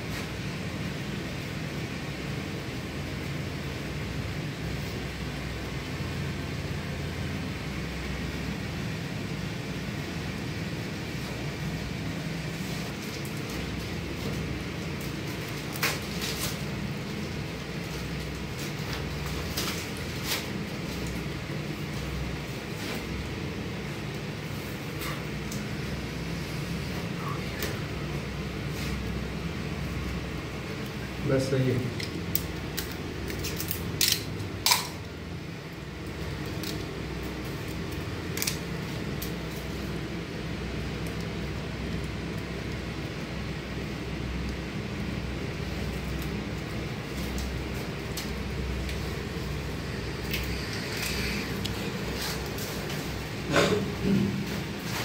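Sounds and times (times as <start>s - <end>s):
low machine hum: 0.0s - 55.0s
cable tie clicking: 32.0s - 35.0s.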